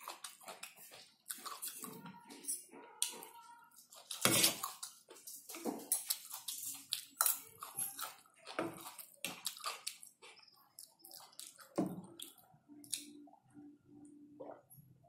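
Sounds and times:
person chewing: 0.0 - 2.4, 3.8 - 13.2
cutlery scraping on a plate: 4.0 - 9.0.

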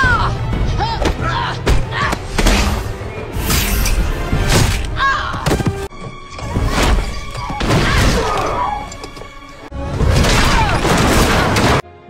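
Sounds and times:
dramatic score music: 0.0 - 12.0.

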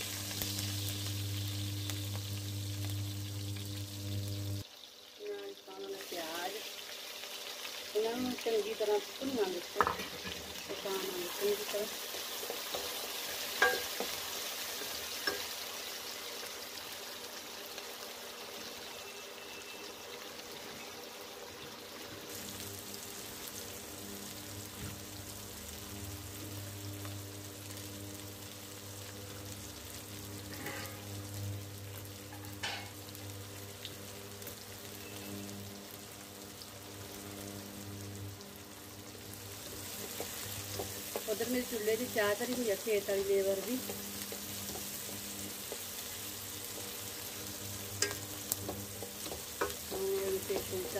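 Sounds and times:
onions sizzling in oil: 0.0 - 50.9
steady low hum: 0.1 - 4.6.

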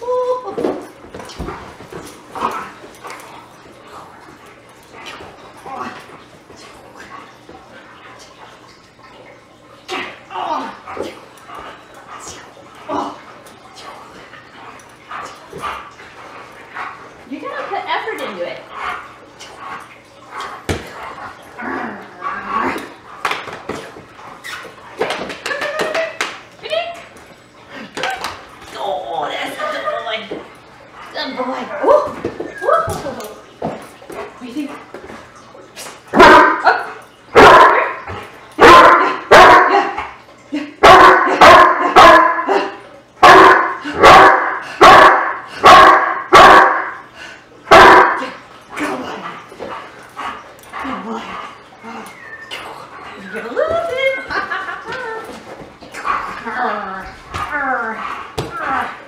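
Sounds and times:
dog barking loudly: 36.2 - 36.8, 37.4 - 38.0, 38.6 - 39.9, 40.8 - 47.0, 47.7 - 48.3.

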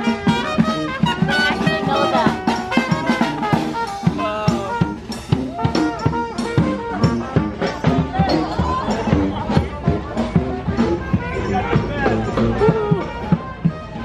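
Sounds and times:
brass band playing jazz: 0.0 - 14.0
steady drum beat: 0.0 - 14.0.

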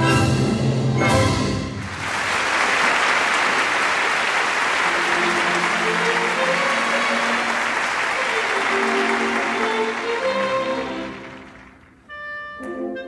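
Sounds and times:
orchestra playing: 0.0 - 2.1, 4.8 - 13.0
audience applauding: 1.7 - 12.1.

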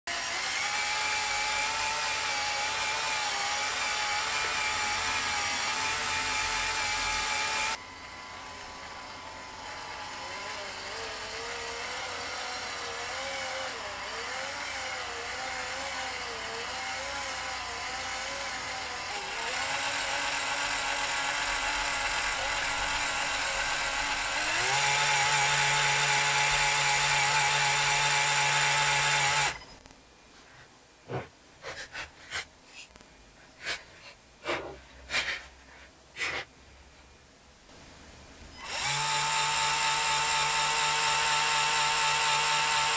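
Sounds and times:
small electric motors whining: 0.1 - 29.9, 38.5 - 42.9.

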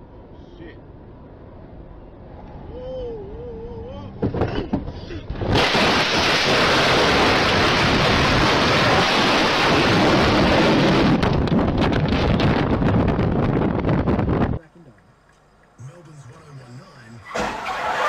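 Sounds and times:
storm wind and rain: 5.4 - 14.6.

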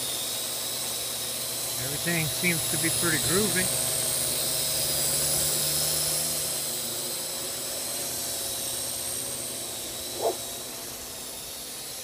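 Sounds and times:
quadcopter drone whine: 0.0 - 12.0.

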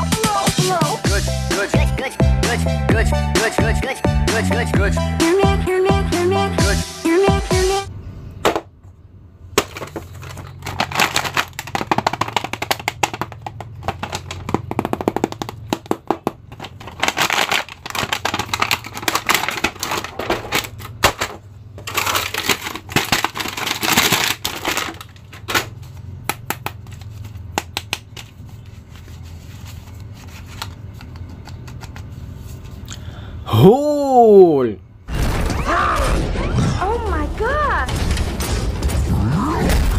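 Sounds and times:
low steady hum: 7.7 - 39.9
plastic packaging crinkling: 9.6 - 21.0, 21.8 - 25.9.

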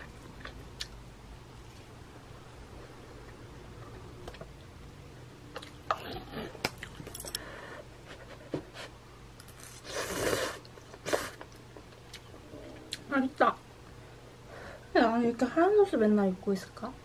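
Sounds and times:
noodle slurping: 9.6 - 11.4.

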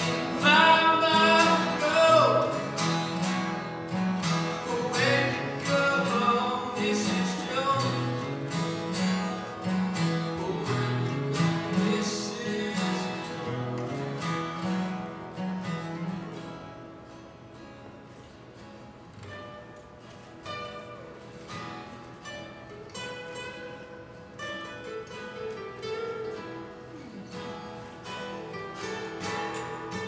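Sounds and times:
young man singing: 0.0 - 2.8, 4.4 - 8.4, 10.1 - 13.7
acoustic guitars strumming: 0.0 - 30.0.

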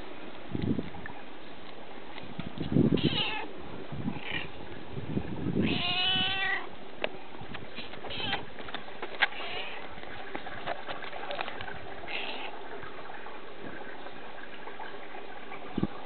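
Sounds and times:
cat meowing: 3.0 - 3.5, 5.6 - 6.7, 7.8 - 8.5, 9.3 - 9.8, 12.1 - 12.6.

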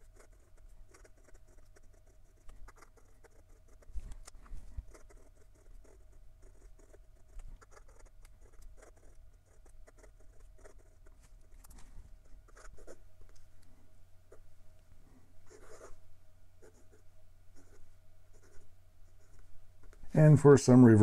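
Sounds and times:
pen nib scratching on paper: 0.0 - 11.8, 12.4 - 13.4, 15.5 - 16.0, 17.6 - 19.5.

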